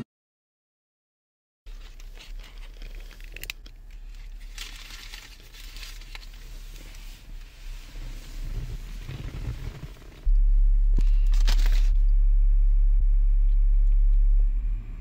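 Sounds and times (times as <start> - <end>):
paper crinkling and rustling: 1.7 - 7.4, 11.0 - 12.0
low steady hum: 1.7 - 15.0.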